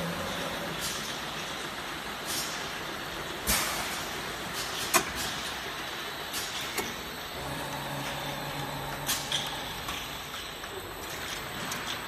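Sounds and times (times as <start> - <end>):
pneumatic valve clicks: 4.6 - 5.4.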